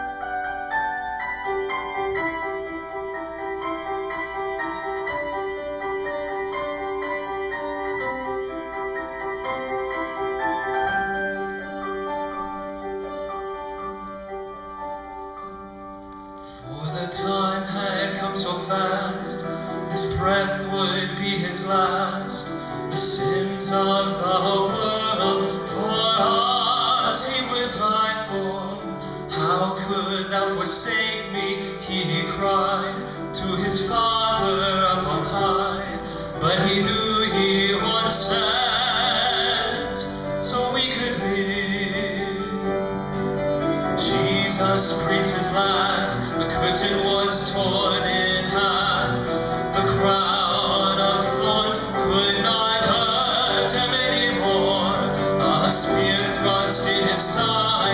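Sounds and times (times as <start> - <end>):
sustained instrumental chords: 0.0 - 27.6
person singing with vibrato: 16.4 - 57.9.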